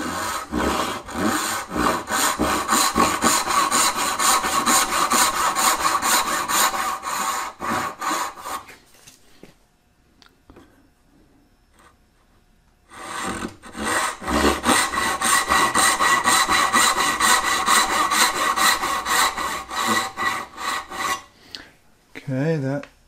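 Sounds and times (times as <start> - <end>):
backsaw sawing wood: 0.0 - 8.7, 12.9 - 21.3.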